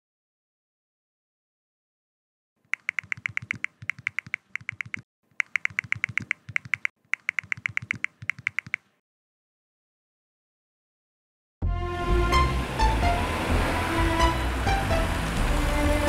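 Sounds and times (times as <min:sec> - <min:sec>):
rapid keyboard typing: 0:02.7 - 0:08.9.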